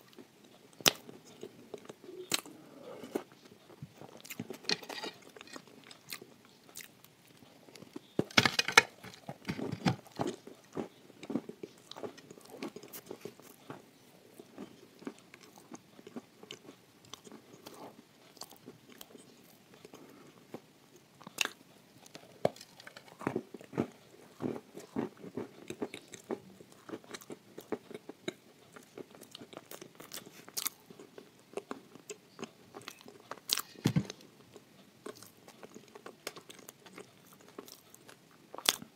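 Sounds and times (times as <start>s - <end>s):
chewing and crunching: 0.0s - 38.9s.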